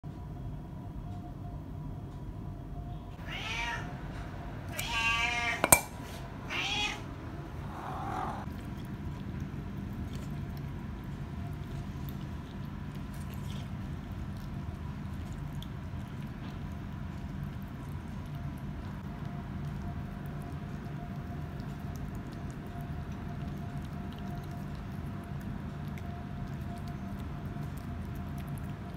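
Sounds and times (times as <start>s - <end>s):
cat meowing: 3.2s - 4.0s, 4.7s - 5.8s, 6.5s - 8.5s
cat eating from metal bowl: 8.3s - 28.9s.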